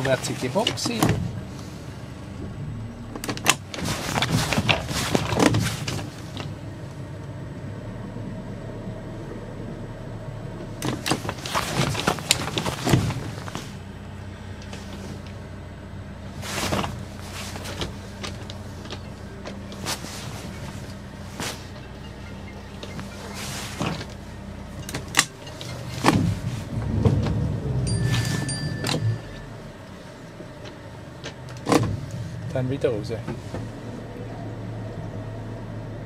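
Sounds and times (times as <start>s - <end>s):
motorboat engine running: 12.4s - 32.7s.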